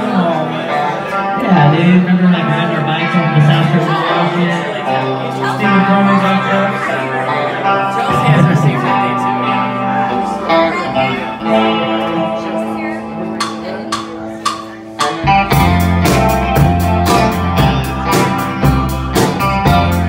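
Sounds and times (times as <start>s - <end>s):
bass guitar: 0.0s - 20.0s
electric guitar sustained notes: 0.0s - 20.0s
rock band playing: 0.0s - 20.0s
drum taps: 13.4s - 15.8s.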